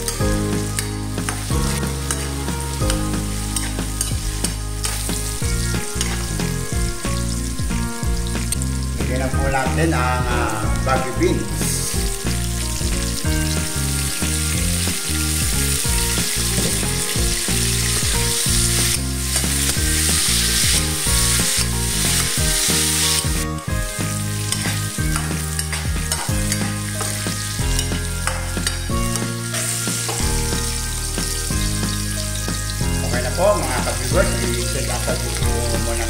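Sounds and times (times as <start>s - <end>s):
vegetables sizzling in hot oil: 0.0s - 36.0s
metal spatula scraping a pan: 0.8s - 6.3s, 24.4s - 30.7s.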